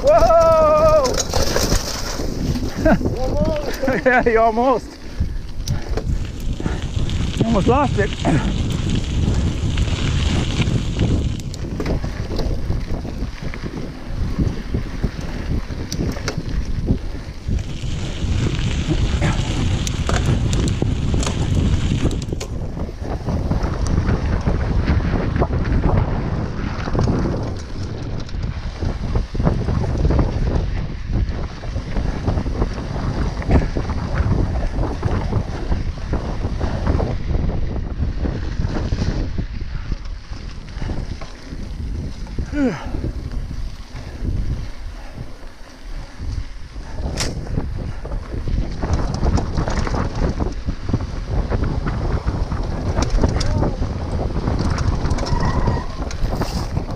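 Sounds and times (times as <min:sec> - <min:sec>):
tyres crunching on gravel: 0:00.0 - 0:22.7
bike rattling over bumps: 0:00.0 - 0:56.9
wind buffeting microphone: 0:00.0 - 0:56.9.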